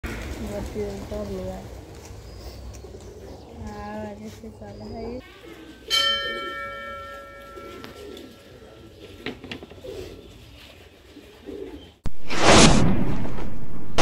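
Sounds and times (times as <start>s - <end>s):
pigeons cooing: 0.1s - 12.0s
metal temple bell ringing: 5.8s - 8.8s
loud rushing whoosh: 12.1s - 14.0s.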